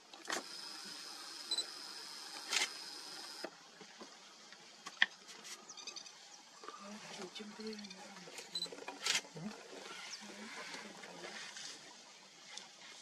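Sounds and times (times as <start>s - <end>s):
zoom lens motor whining: 0.3s - 3.5s.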